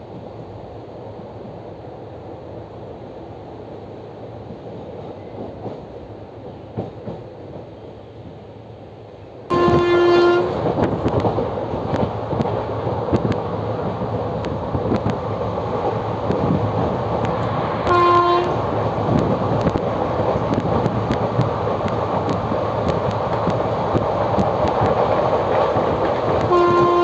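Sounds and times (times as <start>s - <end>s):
train rumbling: 0.0s - 27.0s
train horn blast: 9.5s - 10.7s, 17.8s - 18.6s, 26.4s - 27.0s
wheels clicking over rail joints: 9.5s - 27.0s.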